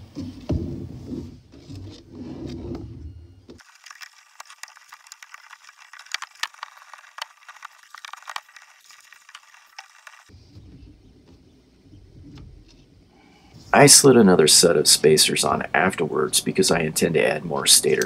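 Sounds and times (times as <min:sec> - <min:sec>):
plastic parts knocking and scraping: 0:03.5 - 0:11.4.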